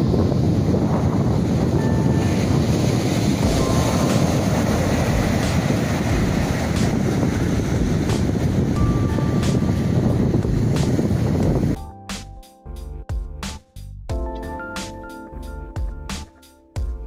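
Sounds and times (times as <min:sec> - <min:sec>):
ocean surf breaking: 0:00.0 - 0:11.8
wind buffeting microphone: 0:00.0 - 0:11.8.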